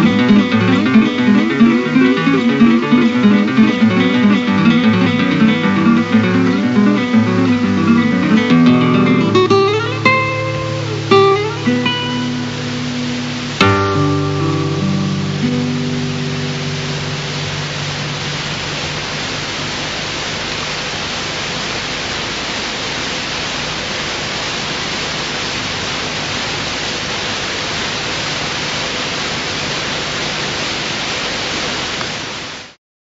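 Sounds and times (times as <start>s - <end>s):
faint held music tones: 0.0s - 21.0s
steady rushing static hiss: 0.0s - 32.8s.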